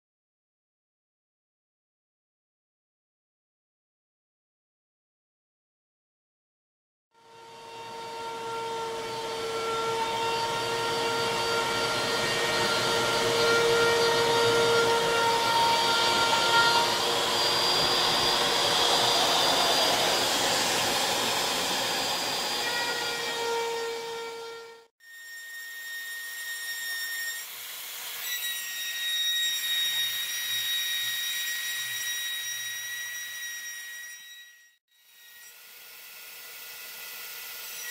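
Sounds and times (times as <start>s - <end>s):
router spindle whining: 7.2s - 24.8s
hiss of wood cutting: 10.4s - 24.0s.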